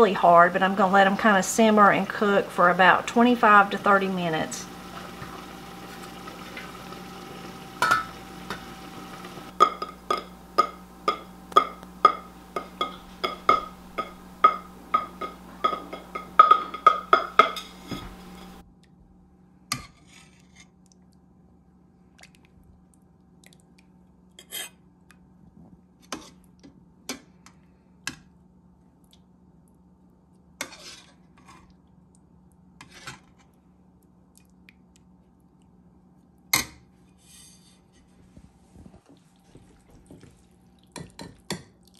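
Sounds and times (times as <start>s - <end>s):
steady low hum: 0.0s - 19.7s
ladle scraping metal pot: 4.6s - 18.6s
pot lid clinking: 7.8s - 8.7s, 9.6s - 18.6s.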